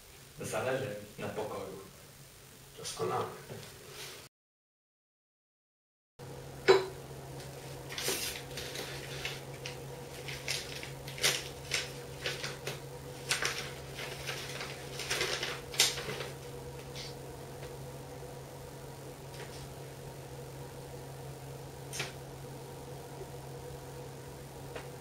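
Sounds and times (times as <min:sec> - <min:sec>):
low electrical hum: 0:00.0 - 0:04.3, 0:06.2 - 0:25.0
paper rustling: 0:07.8 - 0:17.2.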